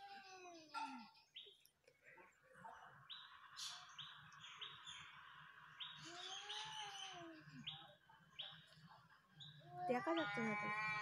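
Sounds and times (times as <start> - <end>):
birds chirping: 0.4 - 11.0.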